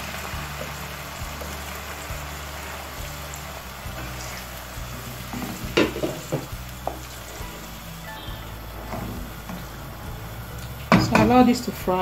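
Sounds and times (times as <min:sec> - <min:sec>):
food sizzling in oil: 0:00.0 - 0:12.0.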